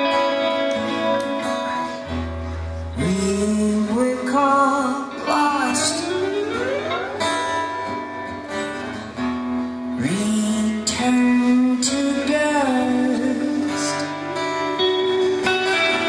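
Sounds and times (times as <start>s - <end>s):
acoustic guitar: 0.0s - 16.0s
bass guitar: 0.0s - 16.0s
person singing lead: 3.0s - 7.2s.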